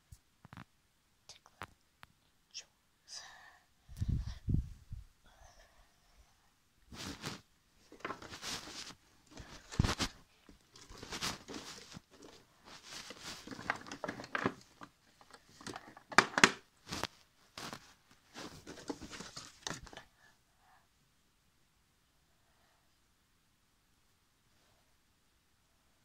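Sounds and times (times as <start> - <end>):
paper and plastic rustling: 6.9 - 20.0.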